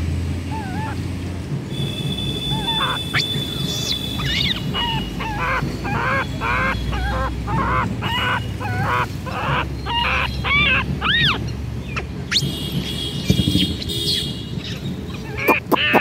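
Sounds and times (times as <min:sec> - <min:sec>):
honking animal calls: 0:00.5 - 0:01.0, 0:01.8 - 0:11.4, 0:15.2 - 0:16.0.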